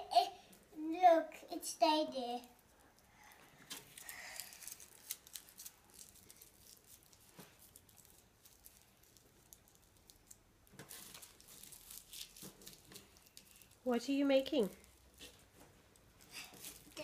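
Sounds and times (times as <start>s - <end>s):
tissue paper rustling: 3.8s - 9.9s.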